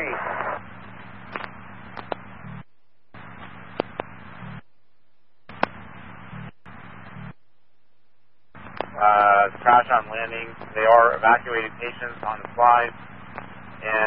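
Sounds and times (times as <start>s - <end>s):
radio static hiss bursts: 0.0s - 14.0s
sharp clicks: 1.3s - 2.2s, 5.4s - 5.8s, 8.6s - 9.3s.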